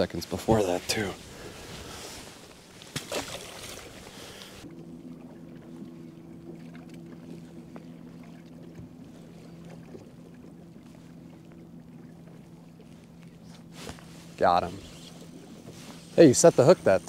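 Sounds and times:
faint wind and water: 0:00.0 - 0:17.0
electric boat motor humming: 0:03.7 - 0:17.0.

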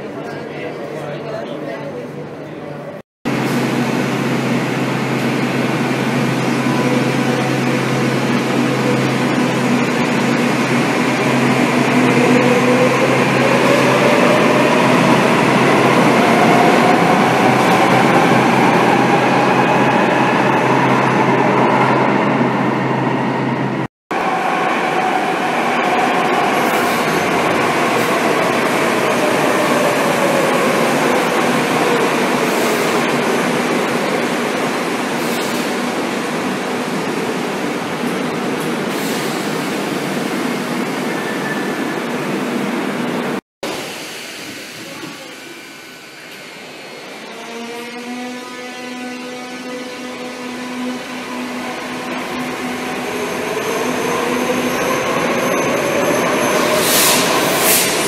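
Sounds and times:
train wheels on rail: 0:51.7 - 0:58.0.

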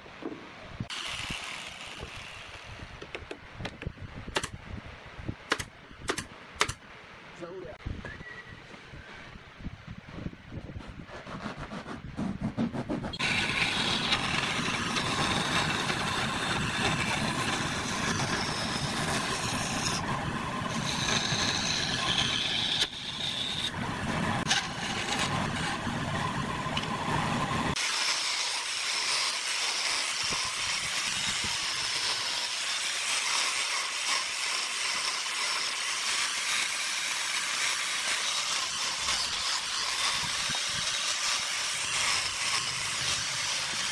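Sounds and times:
band saw cutting wood: 0:00.9 - 0:03.0, 0:11.2 - 0:43.9
angle grinder sanding wood: 0:11.1 - 0:43.9.

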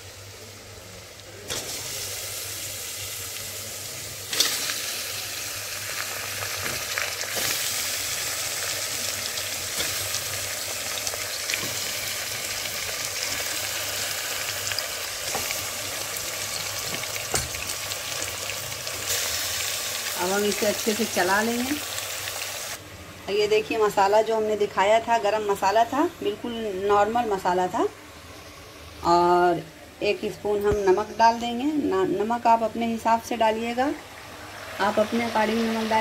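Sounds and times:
chicken sizzling in hot oil: 0:00.0 - 0:22.8.

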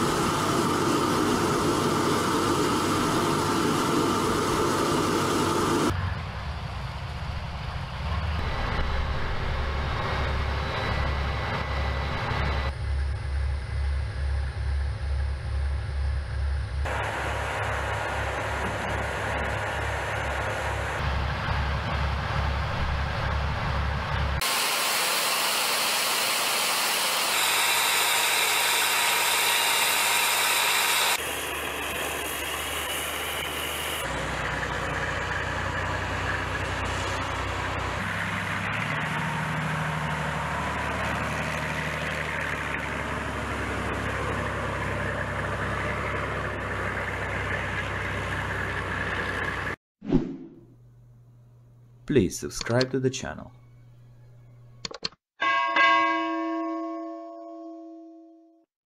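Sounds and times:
diesel truck engines idling: 0:00.0 - 0:24.4, 0:31.1 - 0:49.8.

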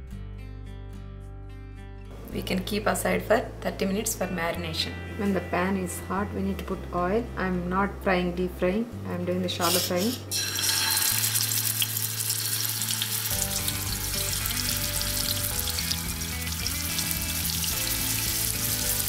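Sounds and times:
soft background music: 0:00.0 - 0:19.0
fish sizzling in hot oil: 0:09.7 - 0:19.0.

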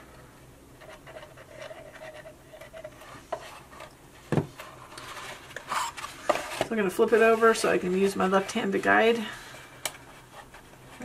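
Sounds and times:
paper rubbing and rustling: 0:00.8 - 0:11.0.

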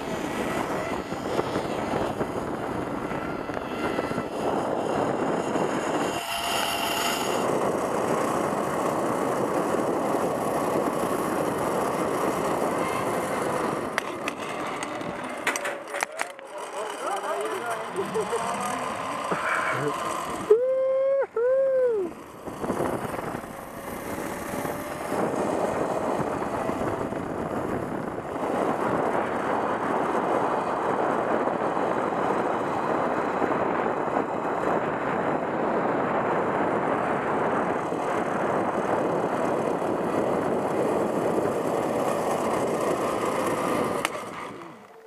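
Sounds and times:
wind on microphone: 0:00.0 - 0:15.9, 0:17.7 - 0:44.9
pulleys whirring on cable: 0:12.2 - 0:20.7.

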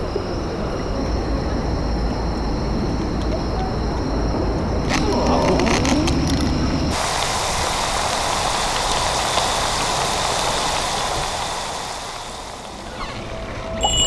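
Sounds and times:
food deep-frying in oil: 0:05.0 - 0:13.2.

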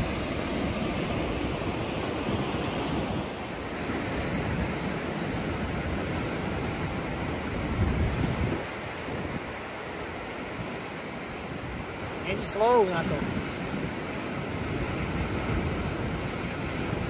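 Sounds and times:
ocean surf breaking: 0:00.0 - 0:17.0
wind on microphone: 0:00.0 - 0:17.0.

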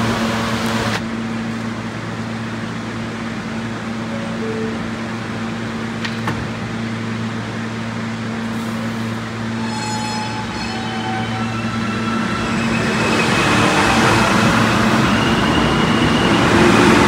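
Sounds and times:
subway train humming: 0:00.0 - 0:17.0.

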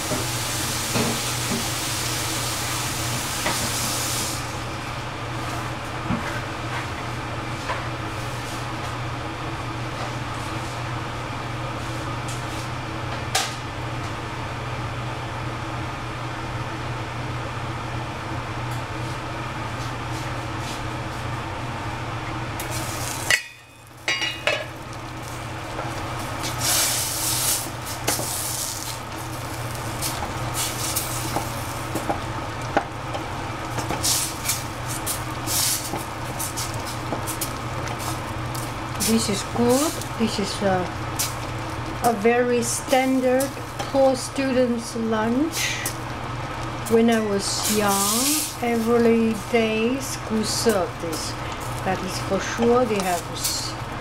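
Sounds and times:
food sizzling: 0:00.0 - 0:04.7, 0:22.5 - 0:54.0
steady hum: 0:00.0 - 0:54.0.

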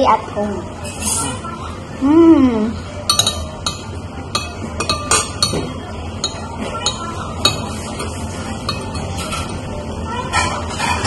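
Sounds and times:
person humming: 0:02.0 - 0:02.8
utensils clinking against bowls: 0:02.8 - 0:11.0.

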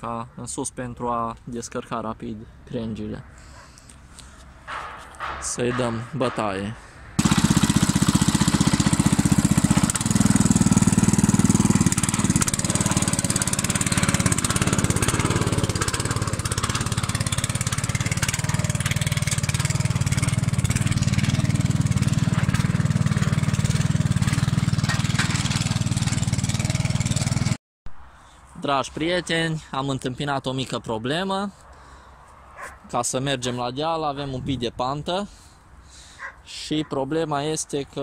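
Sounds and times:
tractor engine running under load: 0:07.2 - 0:27.6.

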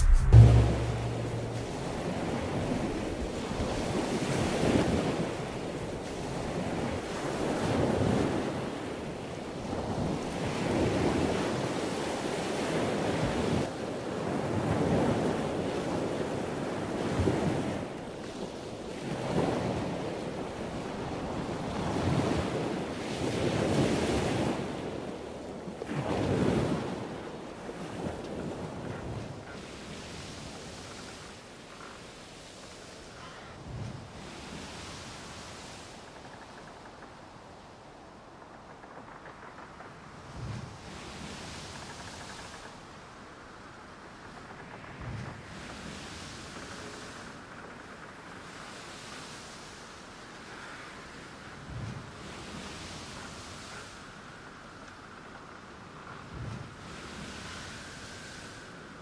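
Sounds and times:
waves washing in: 0:00.0 - 0:31.2, 0:56.3 - 0:59.0.

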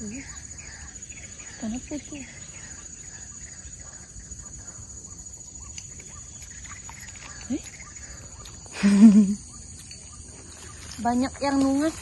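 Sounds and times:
bird chirps: 0:00.0 - 0:12.0.

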